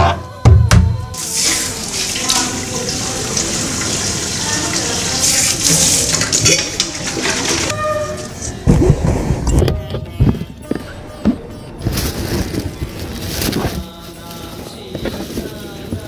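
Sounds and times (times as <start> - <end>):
water splashing: 1.2 - 7.7
tap water into metal bucket: 1.2 - 7.8.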